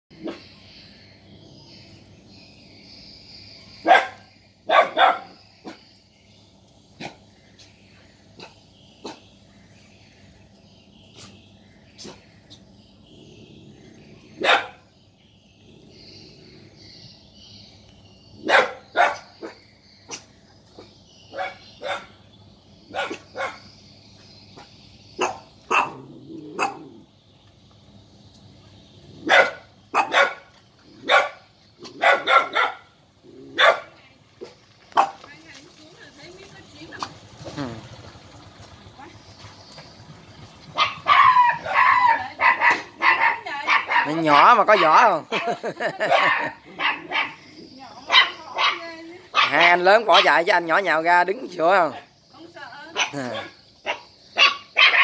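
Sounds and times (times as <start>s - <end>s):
high buzz of insects: 0.1s - 55.0s
dogs barking: 0.2s - 0.6s, 3.8s - 5.9s, 7.0s - 7.7s, 8.3s - 9.4s, 12.0s - 15.0s, 18.4s - 23.7s, 24.6s - 27.1s, 29.0s - 35.3s, 40.6s - 51.0s, 52.9s - 55.0s
dog barking sharply: 29.3s - 30.4s, 31.0s - 32.8s, 49.4s - 50.4s.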